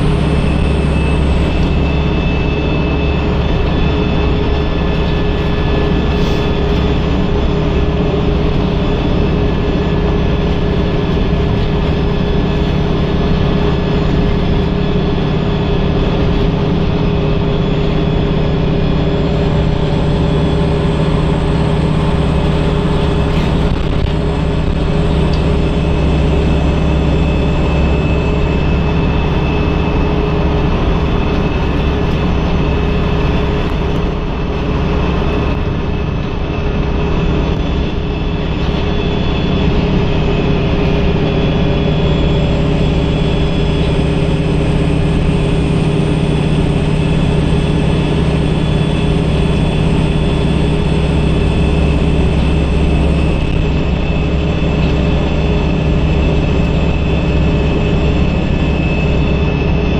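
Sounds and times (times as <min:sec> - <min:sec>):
bus diesel engine droning: 0:00.0 - 0:59.9
road and tyre rumble: 0:00.0 - 0:59.9.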